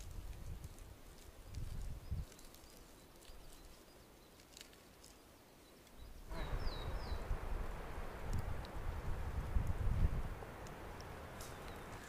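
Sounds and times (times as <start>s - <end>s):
footsteps rustling on forest floor: 0.0s - 6.0s
small bird chirping: 1.8s - 7.3s.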